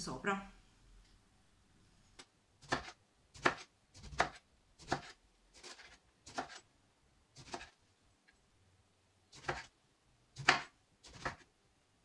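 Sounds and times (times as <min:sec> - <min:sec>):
knife slicing on cutting board: 0:02.6 - 0:06.6, 0:07.4 - 0:07.8.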